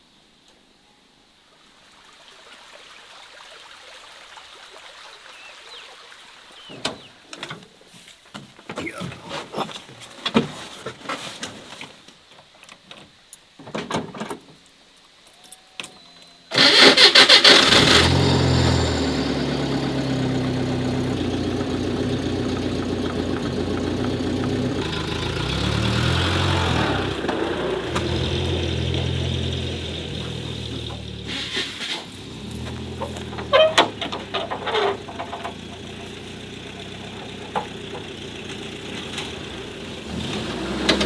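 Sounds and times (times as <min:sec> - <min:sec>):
van engine starting and idling: 0:16.5 - 0:41.0.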